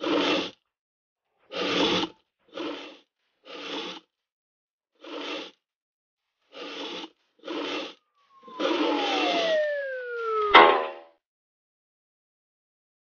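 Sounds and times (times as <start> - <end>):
metal rail scraping on table: 1.5 - 4.0, 6.5 - 8.0.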